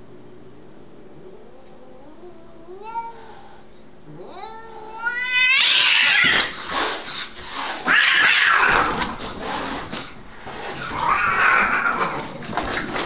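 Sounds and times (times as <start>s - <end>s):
cats yowling: 4.1s - 6.6s, 7.8s - 9.0s, 10.8s - 12.4s
cats screeching: 4.2s - 6.6s, 7.8s - 9.1s, 10.8s - 12.4s.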